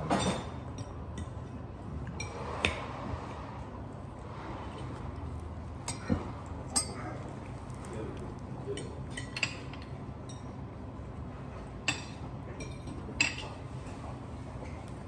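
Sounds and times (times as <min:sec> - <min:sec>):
low room hum: 0:00.0 - 0:15.0
knife clinking against dishes: 0:05.8 - 0:07.2, 0:08.7 - 0:10.6, 0:11.8 - 0:13.6.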